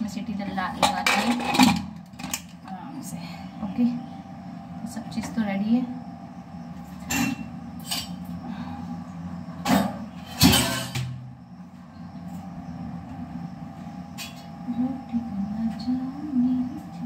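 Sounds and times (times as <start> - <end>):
low background hum: 0.0 - 17.0
kitchen utensils knocking and clinking: 0.8 - 1.9.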